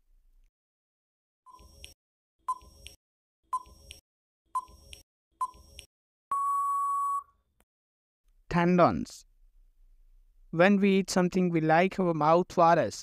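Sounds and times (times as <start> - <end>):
long steady beep: 6.3 - 7.3
short beeps: 6.3 - 7.3.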